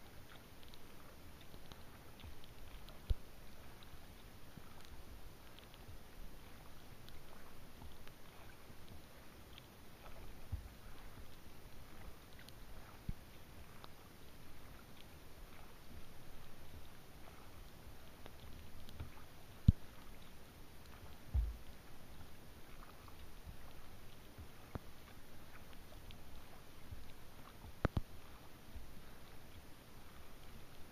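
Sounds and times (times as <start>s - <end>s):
light rain ticking on water: 0.0s - 30.9s
dull knocks on kayak: 21.3s - 21.6s.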